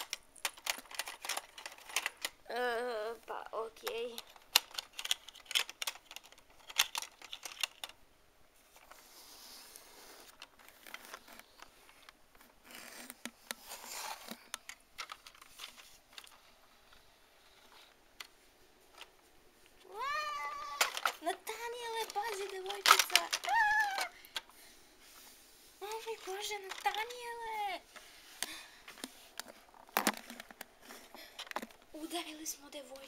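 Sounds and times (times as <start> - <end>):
plastic toys clicking and tapping: 0.0 - 2.8, 3.6 - 8.0, 13.2 - 18.3, 20.4 - 24.6, 25.9 - 27.8, 28.4 - 31.9
rustling: 0.0 - 33.0.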